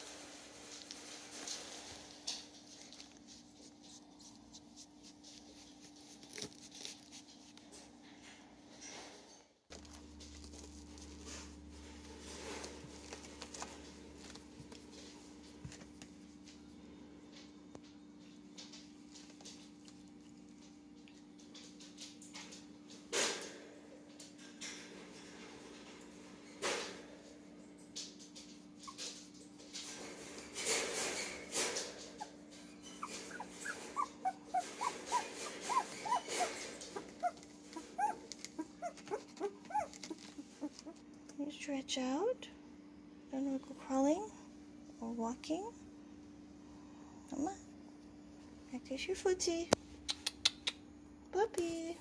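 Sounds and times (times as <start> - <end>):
puppy rustling and scratching: 0.0 - 41.5
faint low hum: 0.0 - 52.0
puppy squeaking: 32.2 - 41.0.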